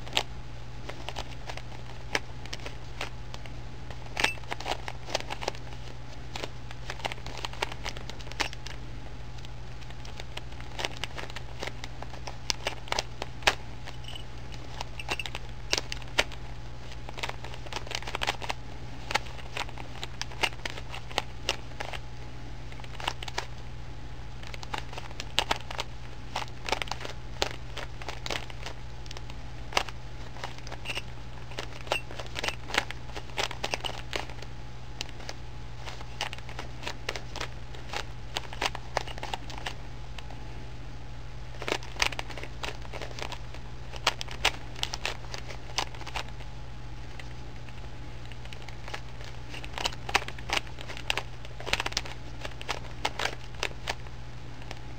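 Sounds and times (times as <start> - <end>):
low hum: 0.0 - 17.8.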